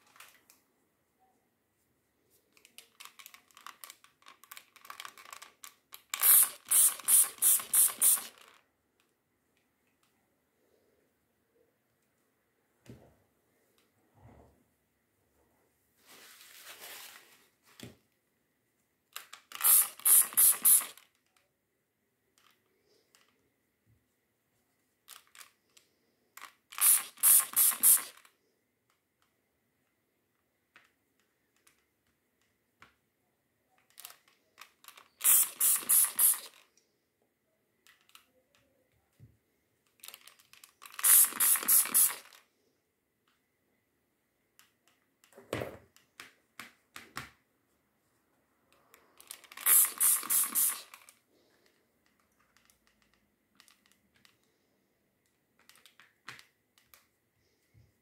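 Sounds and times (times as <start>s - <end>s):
spray bottle squirts: 6.2s - 8.4s, 19.6s - 21.0s, 26.8s - 28.2s, 35.1s - 36.6s, 41.0s - 42.3s, 49.5s - 51.0s
soft handling rustles: 15.3s - 18.2s.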